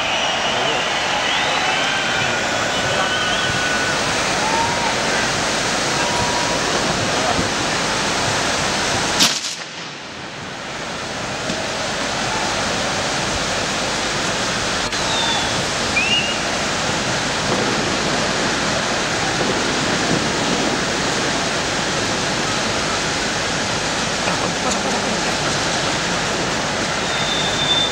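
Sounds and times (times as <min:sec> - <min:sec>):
firework fountains hissing: 0:00.0 - 0:27.9
sharp crack: 0:09.0 - 0:10.4.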